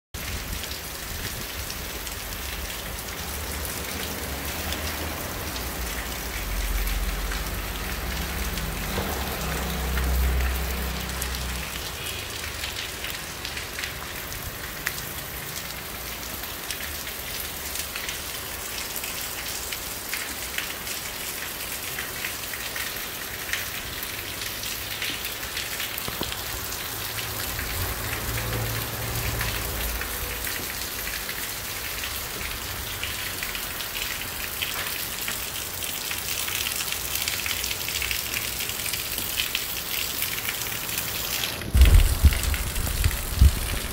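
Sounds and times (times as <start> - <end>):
heavy rain on street and rooftops: 0.1 - 43.9
low rumble: 41.7 - 43.9.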